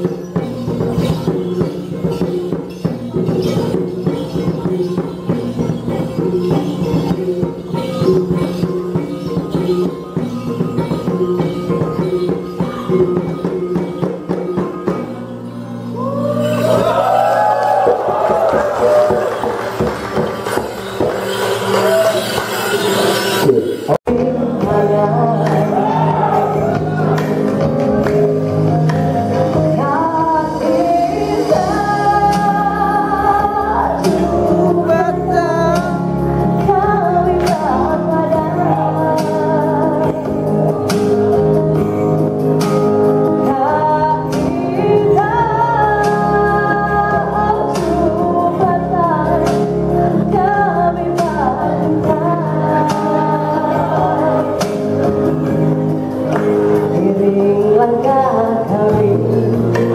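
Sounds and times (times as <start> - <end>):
band music with beat and bass: 0.0 - 59.9
woman singing into microphone: 24.1 - 59.9.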